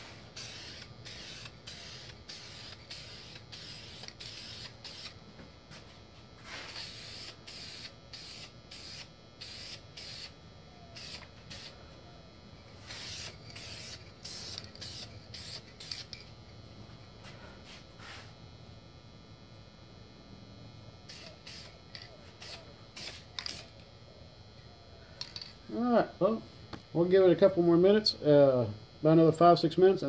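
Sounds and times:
aerosol spray hisses: 0.0s - 5.2s, 6.4s - 10.3s, 12.8s - 16.1s, 22.4s - 23.7s.

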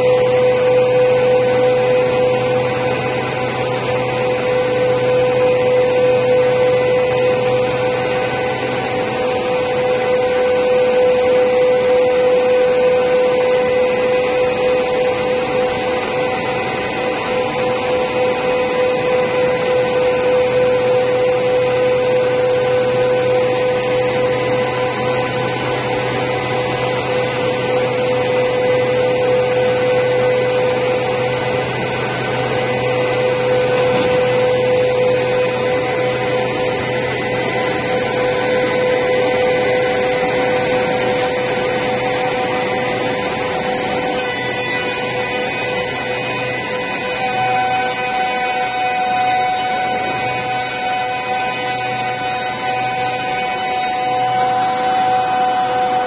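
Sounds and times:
planer machine planing wood: 0.0s - 56.0s.

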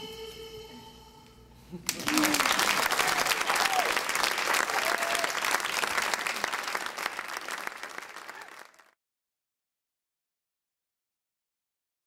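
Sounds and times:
audience whoops: 1.9s - 6.9s, 7.5s - 8.9s
audience applauding: 1.9s - 9.0s.

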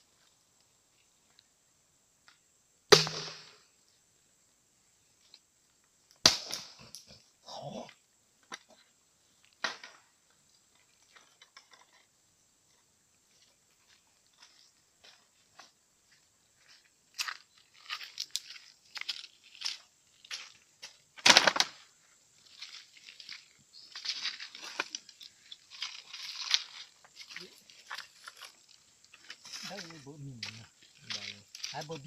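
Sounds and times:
loud wood crack: 6.2s - 6.9s, 21.2s - 21.8s
footsteps crunching on pebbles: 12.7s - 32.0s.

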